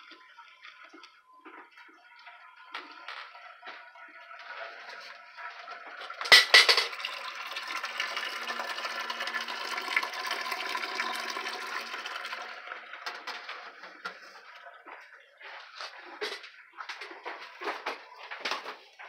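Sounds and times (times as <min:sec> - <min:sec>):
milk pouring into metal container: 0:03.4 - 0:14.9.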